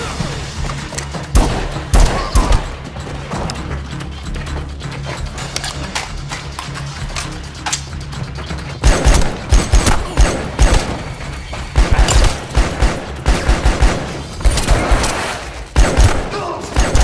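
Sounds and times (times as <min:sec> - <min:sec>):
rifle gunfire: 0:01.4 - 0:02.7, 0:08.8 - 0:11.2, 0:11.8 - 0:17.0.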